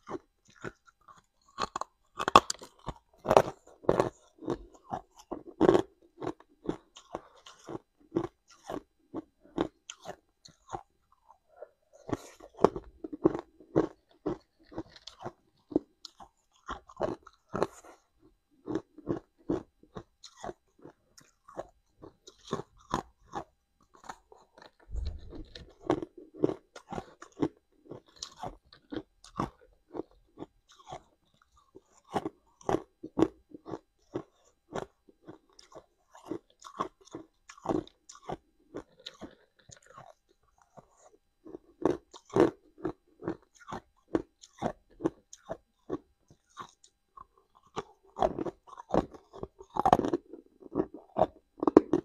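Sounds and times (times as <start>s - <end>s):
ice crunching between teeth: 0.0s - 18.0s, 25.7s - 52.0s
low thump: 24.9s - 25.7s.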